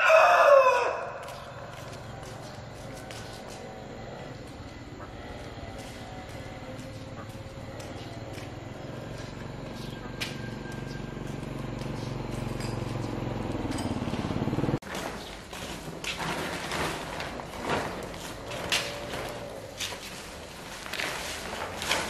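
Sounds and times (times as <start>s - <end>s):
engine running: 6.0s - 14.9s
plastic sack rustling: 14.9s - 22.0s.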